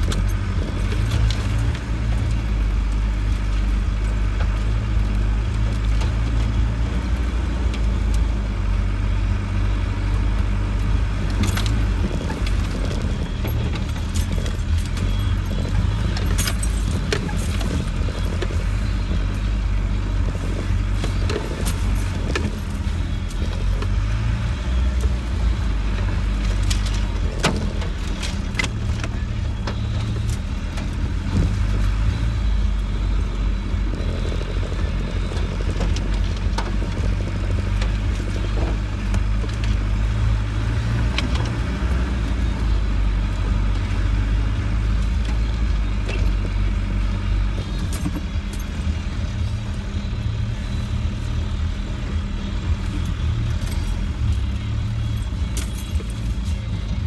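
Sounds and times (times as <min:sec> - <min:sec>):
vehicle engine running at low speed: 0:00.0 - 0:57.0.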